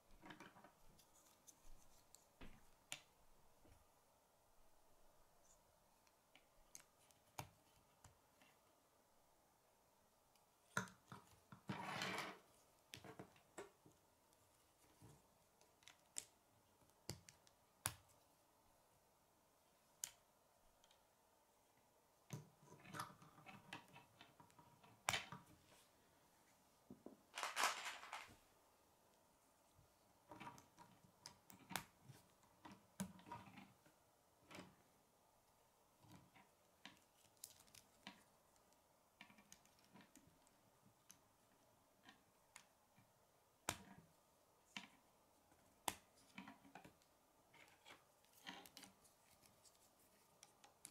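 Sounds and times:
plastic rattling: 0:27.3 - 0:28.4.

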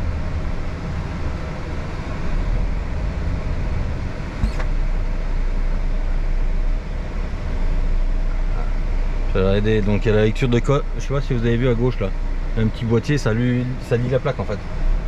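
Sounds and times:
truck diesel engine running: 0:00.0 - 0:15.0.

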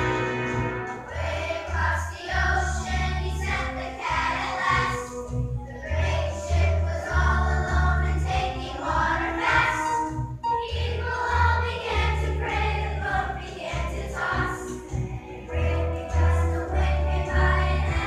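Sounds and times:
choir singing with accompaniment: 0:00.0 - 0:18.0
pulsing bass line: 0:13.9 - 0:18.0.

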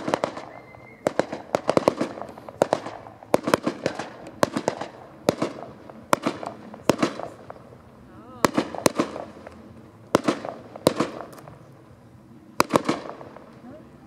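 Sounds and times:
fireworks bangs: 0:00.0 - 0:11.9, 0:12.5 - 0:14.0.

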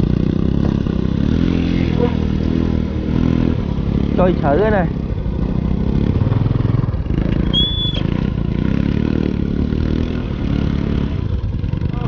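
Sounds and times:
motorcycle engine running: 0:00.0 - 0:12.0
high whistle: 0:07.5 - 0:08.0.

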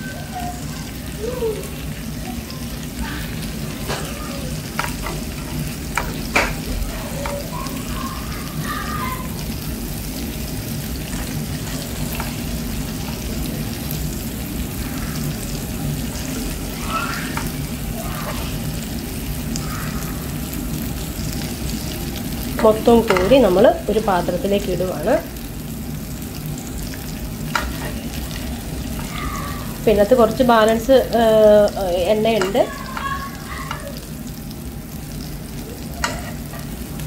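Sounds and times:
prawns sizzling in oil: 0:00.0 - 0:37.0
spatula tapping a pan: 0:04.7 - 0:07.8, 0:22.6 - 0:23.5, 0:27.5 - 0:28.0, 0:32.2 - 0:33.9, 0:36.0 - 0:36.7
spatula scraping a pan: 0:27.5 - 0:29.8, 0:36.0 - 0:36.8.

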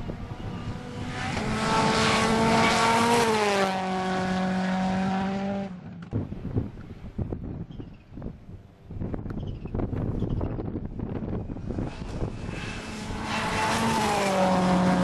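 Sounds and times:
rally car engine passing: 0:00.0 - 0:06.0, 0:11.1 - 0:15.0.

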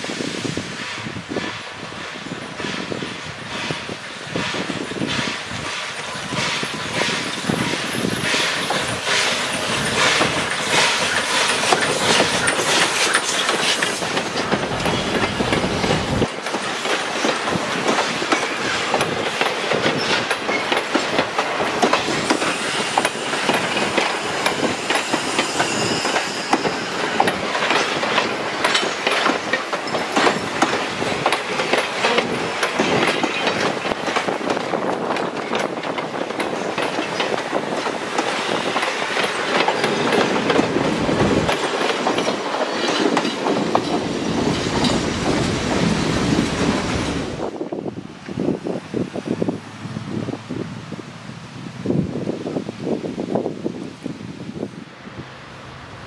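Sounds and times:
train wheels clickety-clack: 0:00.0 - 0:48.7
steam locomotive rumble: 0:00.0 - 0:56.0.

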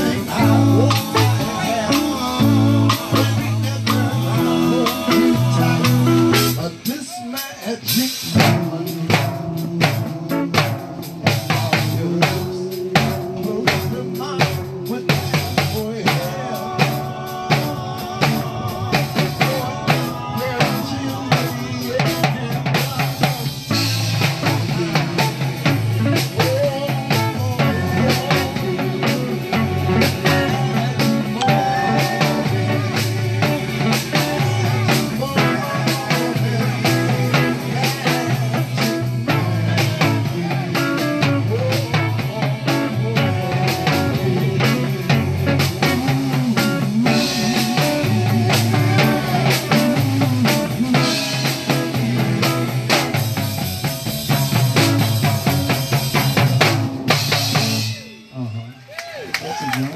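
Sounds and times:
bass line: 0:00.0 - 0:07.0, 0:08.2 - 0:58.6
live band music: 0:00.0 - 0:59.9.

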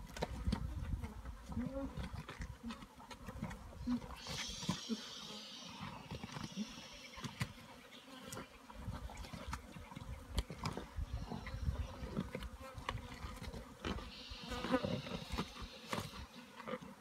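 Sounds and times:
flies buzzing: 0:04.1 - 0:08.8, 0:13.7 - 0:16.6.

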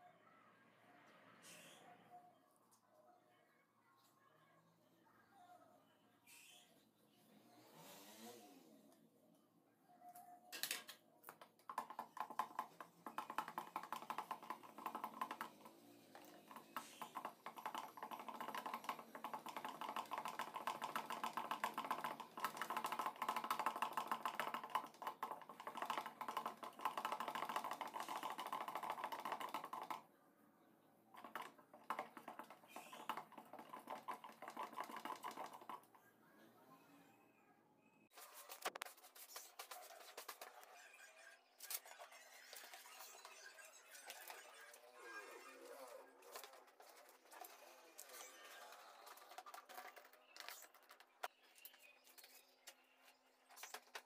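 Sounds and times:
stick stirring liquid in plastic can: 0:11.6 - 0:30.0, 0:31.2 - 0:36.0.

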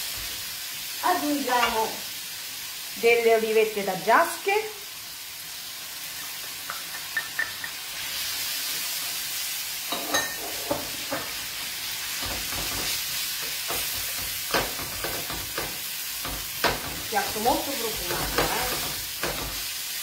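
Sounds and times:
vegetables sizzling in hot oil: 0:00.0 - 0:20.0
utensil knocking and scraping a pan: 0:09.9 - 0:11.4, 0:12.2 - 0:19.7.

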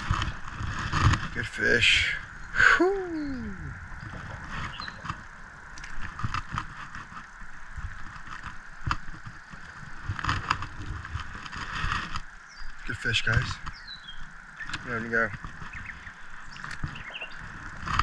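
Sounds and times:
steady hiss: 0:00.0 - 0:18.0
short falling cry: 0:02.6 - 0:03.8.

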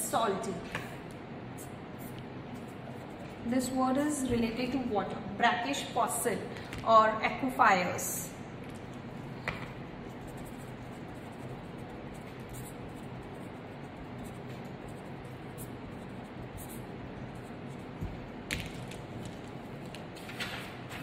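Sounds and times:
marker scratching on paper: 0:01.6 - 0:04.6, 0:09.8 - 0:18.4
pens knocking: 0:18.0 - 0:20.0.

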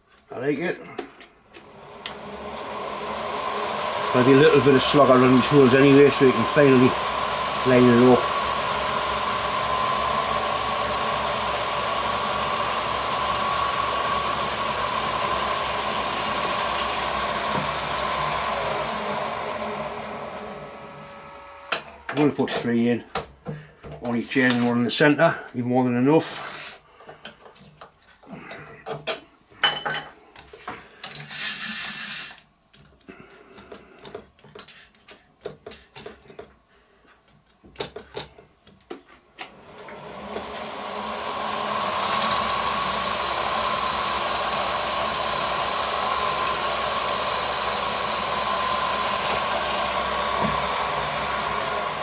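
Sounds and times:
drill boring through metal: 0:01.4 - 0:22.3, 0:31.2 - 0:32.4, 0:39.4 - 0:52.0
milling machine spindle whine: 0:01.4 - 0:22.3, 0:39.4 - 0:52.0.

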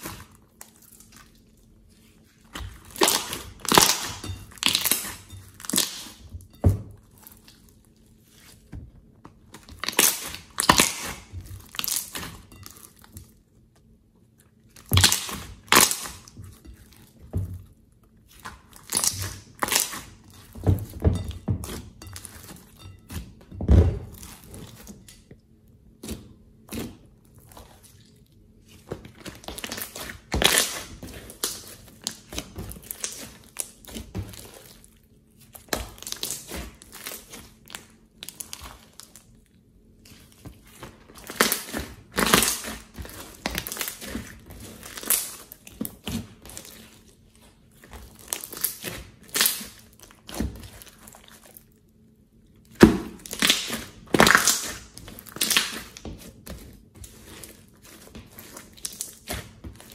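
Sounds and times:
slime squelching and popping: 0:02.3 - 0:07.8, 0:09.4 - 0:13.4, 0:14.6 - 0:17.0, 0:18.2 - 0:21.0, 0:28.6 - 0:34.8, 0:35.4 - 0:39.4, 0:40.0 - 0:51.8, 0:52.6 - 0:59.9.

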